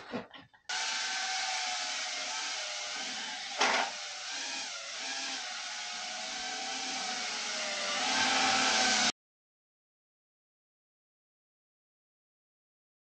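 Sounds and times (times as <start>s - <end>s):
drone motors whining: 0.7s - 9.1s.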